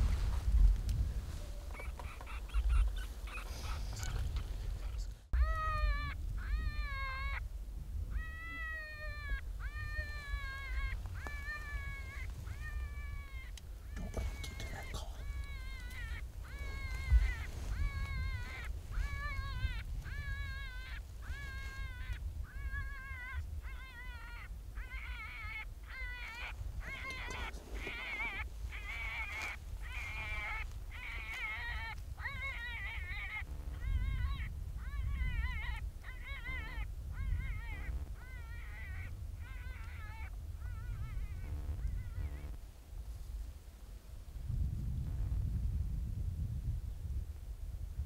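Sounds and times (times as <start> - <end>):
wind rumble on microphone: 0.0 - 48.0
predator call distress cries: 5.4 - 7.4, 8.1 - 42.6
electronic distress call wails: 36.3 - 38.9, 41.4 - 42.6.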